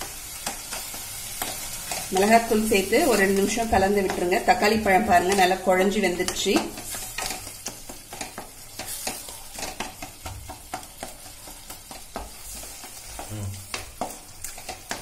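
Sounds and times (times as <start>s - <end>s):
light sizzle: 0.0s - 15.0s
wooden spatula clicking on pan: 6.2s - 12.4s, 13.0s - 15.0s.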